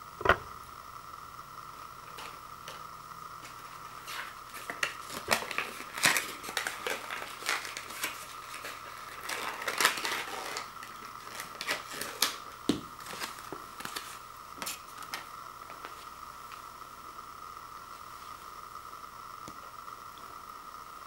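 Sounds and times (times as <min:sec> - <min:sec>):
faint high hum: 0:00.0 - 0:21.0
paper tags crinkling: 0:03.4 - 0:16.0.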